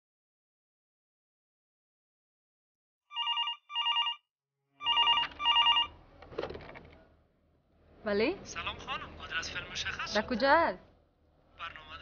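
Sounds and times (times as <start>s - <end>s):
desk telephone ringing: 3.1s - 6.0s.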